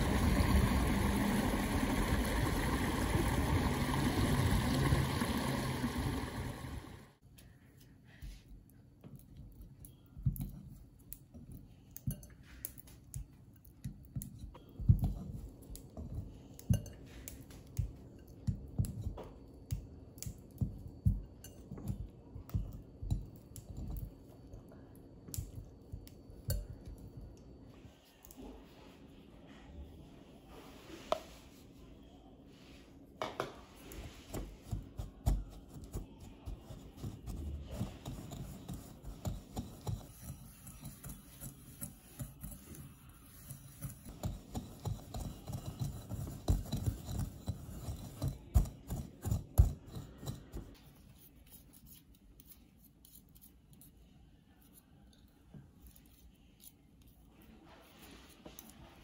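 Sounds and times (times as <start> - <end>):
whisk scraping glass bowl: 36.7 - 50.6.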